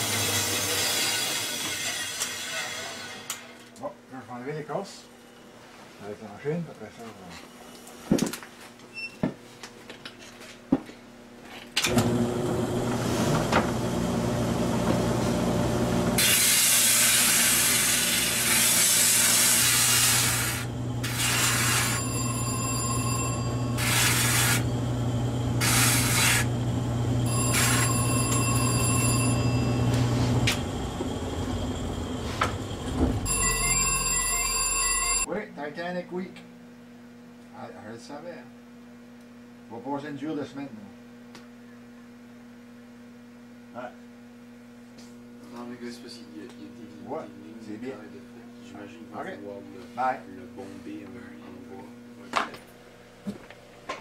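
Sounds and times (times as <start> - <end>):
sanding machine motor hum: 11.9 - 35.2
loud rasping of wood sanding: 16.2 - 22.1, 23.8 - 24.7, 25.6 - 26.5, 27.4 - 28.1
short high ringing squeals: 21.6 - 24.7, 27.2 - 30.3, 33.2 - 35.3.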